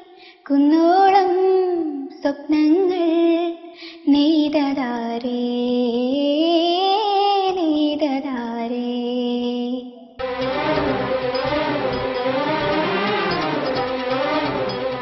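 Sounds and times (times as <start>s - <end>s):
woman singing: 0.4s - 10.0s
instrumental backing with strings: 10.2s - 15.0s.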